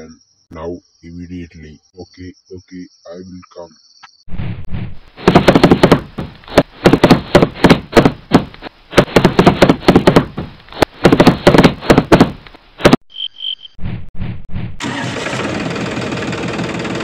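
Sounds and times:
heavy stomping footsteps: 5.2 - 13.0.

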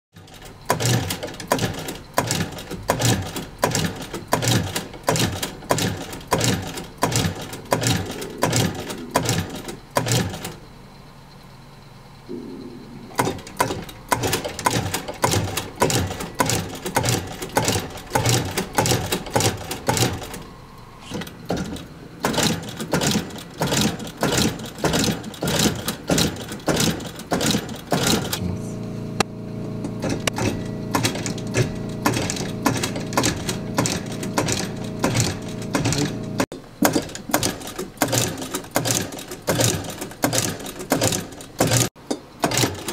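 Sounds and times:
sewing machine stitching: 0.2 - 10.6, 13.1 - 28.4, 29.8 - 42.9.

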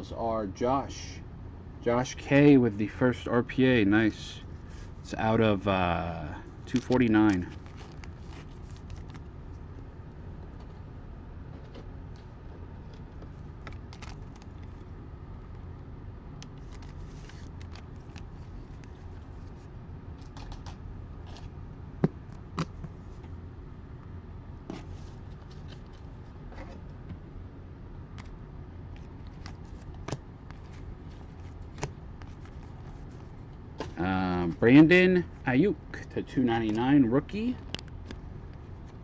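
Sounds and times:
low hum: 0.0 - 39.0
cards rustling and clicking: 6.6 - 9.3, 11.6 - 14.9, 16.4 - 23.3, 24.7 - 26.7, 28.2 - 34.7, 36.6 - 37.0.

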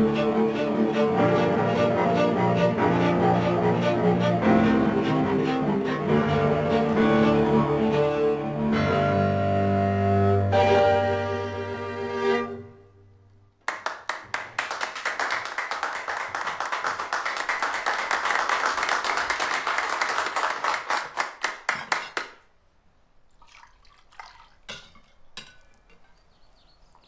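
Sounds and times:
audience applauding: 13.6 - 22.3.

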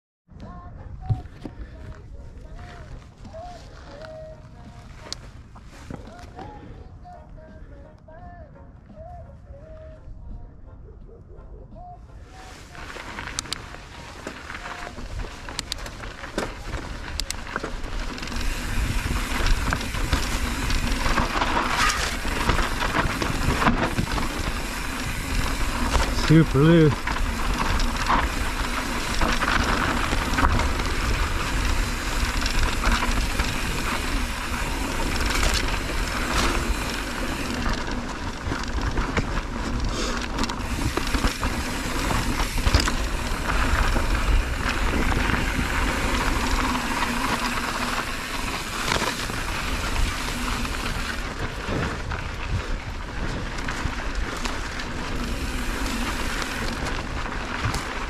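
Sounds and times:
tyres rolling over loose dirt: 0.8 - 7.2, 11.8 - 58.0
wind rumbling on microphone: 8.4 - 58.0
bike rattling and knocking: 12.7 - 58.0.

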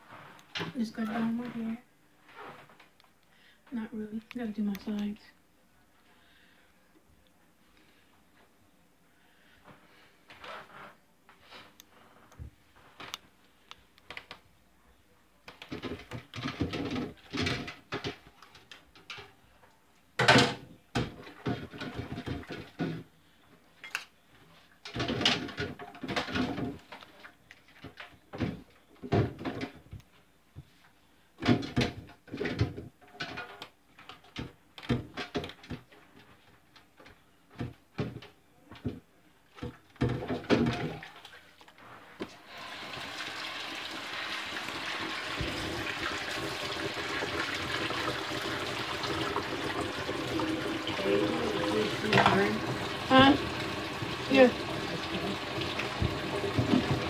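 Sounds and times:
dishes clattering in a sink: 20.2 - 23.1, 24.9 - 26.9, 39.6 - 41.2, 44.6 - 57.0
tap water filling a pot: 42.5 - 57.0.

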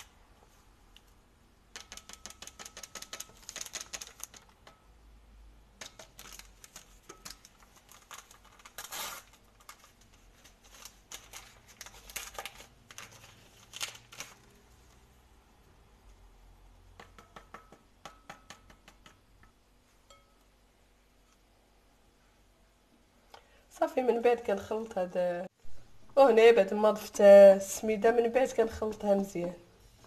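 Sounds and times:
packet rustle: 3.2 - 4.6, 5.9 - 14.6
paper sachet crinkling: 3.2 - 4.6, 6.1 - 14.6.

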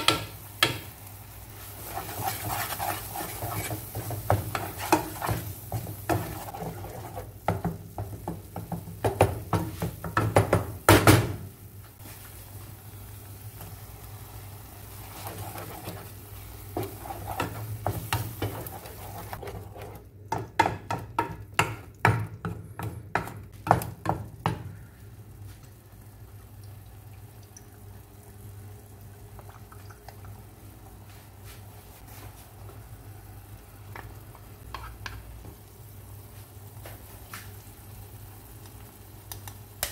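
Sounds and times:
spatula scraping a pan: 1.6 - 7.7, 15.0 - 20.1, 34.6 - 35.2.

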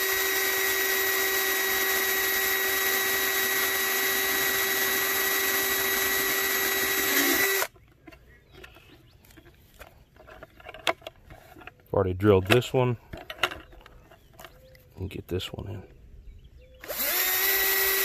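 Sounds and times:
cordless drill boring plastic: 0.0 - 7.7, 16.8 - 18.0.

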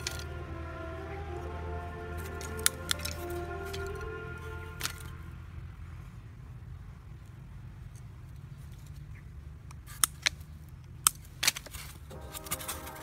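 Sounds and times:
background music: 0.0 - 5.6, 12.1 - 13.0
wire pins clicking and scraping: 2.2 - 4.1, 4.7 - 5.2.

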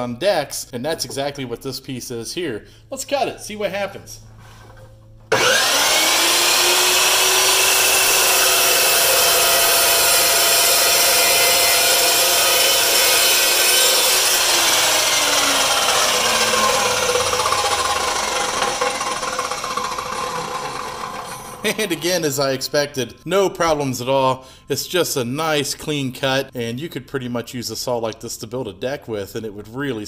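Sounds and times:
saw blade cutting decking: 5.3 - 22.6
chop saw whining: 5.3 - 22.7.

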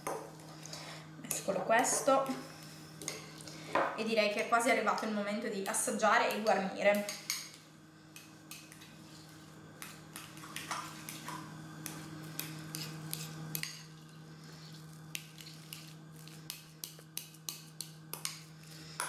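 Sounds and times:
fork scraping glass bowl: 12.4 - 18.6.

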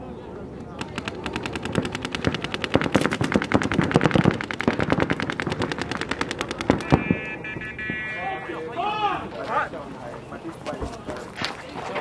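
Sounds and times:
paintball markers firing rapidly: 0.6 - 7.3.

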